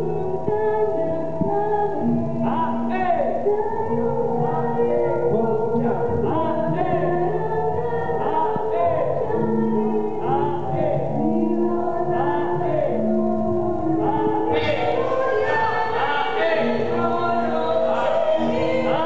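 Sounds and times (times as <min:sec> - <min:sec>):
music with singing: 0:00.0 - 0:19.0.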